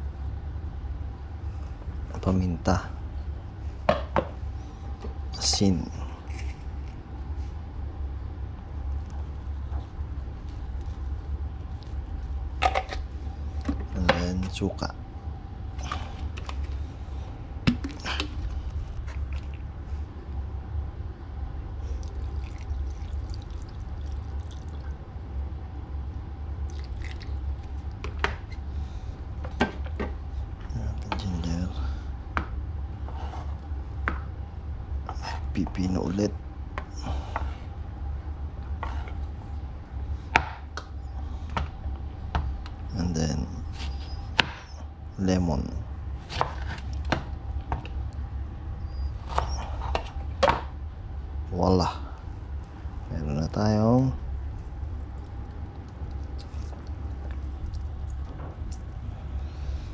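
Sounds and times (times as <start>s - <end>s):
steady low hum: 0.0s - 59.9s
liquid pouring and dripping: 22.0s - 25.0s, 26.6s - 27.7s.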